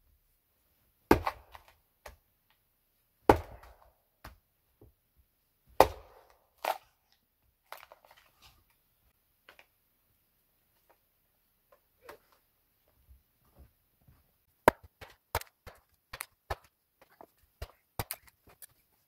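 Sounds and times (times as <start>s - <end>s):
hatchet striking firewood: 1.1s - 2.2s, 3.3s - 4.4s, 5.8s - 6.8s, 14.6s - 16.7s, 17.6s - 18.3s.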